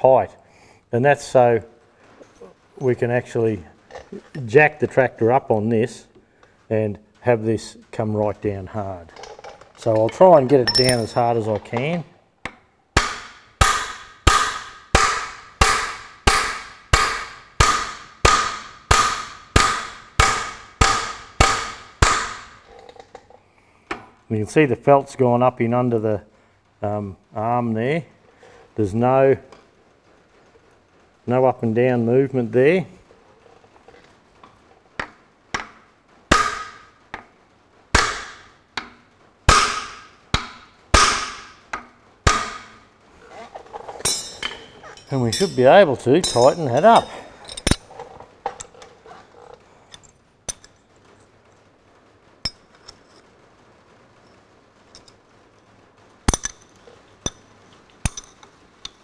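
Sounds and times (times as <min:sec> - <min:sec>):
hammer striking steel: 0:10.7 - 0:11.3, 0:13.0 - 0:22.6, 0:35.6 - 0:36.9, 0:38.0 - 0:42.8, 0:44.0 - 0:47.8.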